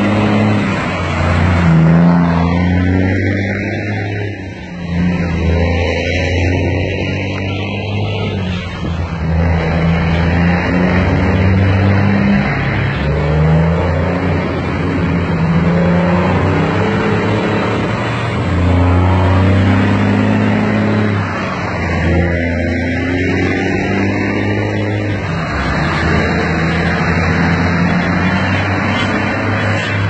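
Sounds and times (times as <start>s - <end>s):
diesel truck engine under load: 0.0s - 30.0s.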